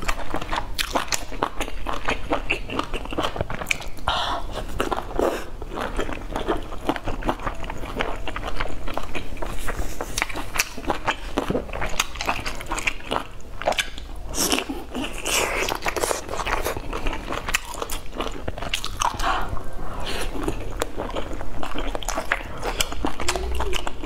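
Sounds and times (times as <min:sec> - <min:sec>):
person chewing food: 0:00.0 - 0:24.0.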